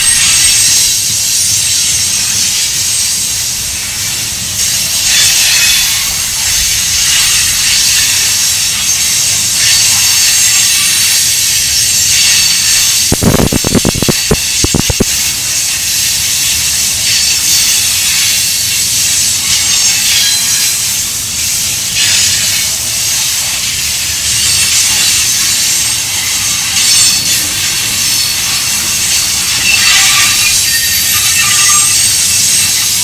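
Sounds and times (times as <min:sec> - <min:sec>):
train wheels hissing on rail: 0:00.0 - 0:33.0
wheels clacking over rail joint: 0:00.0 - 0:33.0.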